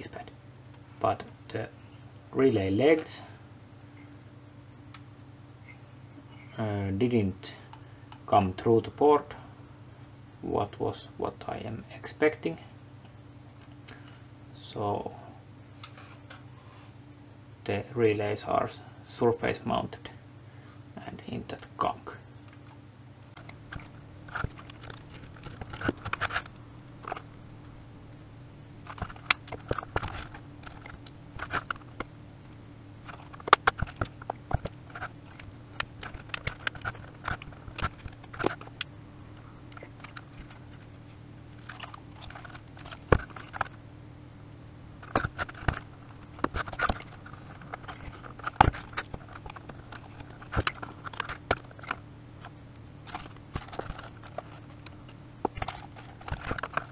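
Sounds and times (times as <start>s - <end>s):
steady low hum: 0.0s - 56.9s
plastic clicks crunches and scrapes: 22.4s - 43.8s, 45.0s - 56.9s.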